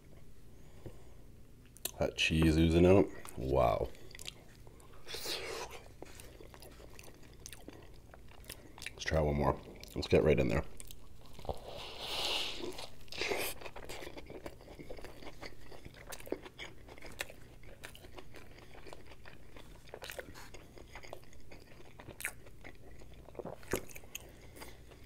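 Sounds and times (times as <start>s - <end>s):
chewing with crackles: 2.9s - 25.0s.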